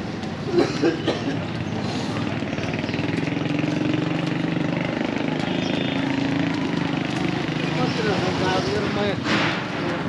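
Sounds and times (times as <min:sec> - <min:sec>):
street noise: 0:00.0 - 0:10.0
vehicle engine running at low revs: 0:01.5 - 0:09.0.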